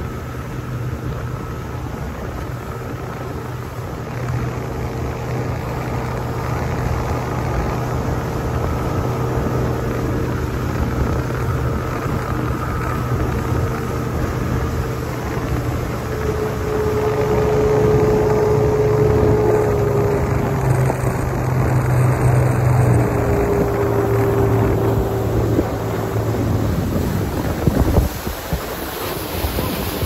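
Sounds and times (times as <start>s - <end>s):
speedboat engine droning: 0.0s - 30.0s.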